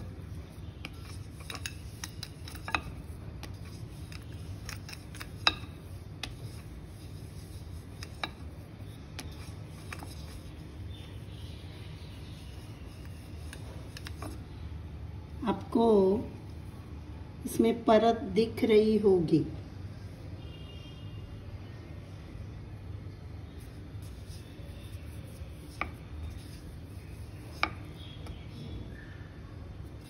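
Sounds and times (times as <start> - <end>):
rolling pin rolling dough: 0.0 - 14.6, 23.5 - 28.5.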